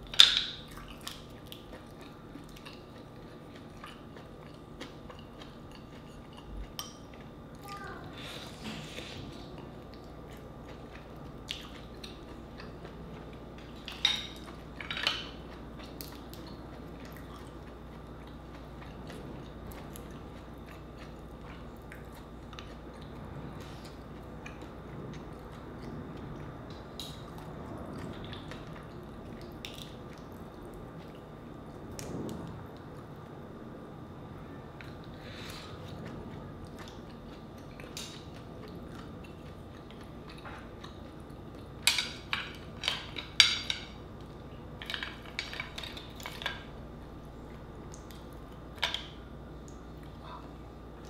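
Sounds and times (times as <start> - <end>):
person chewing: 0.6 - 31.4, 34.8 - 43.5.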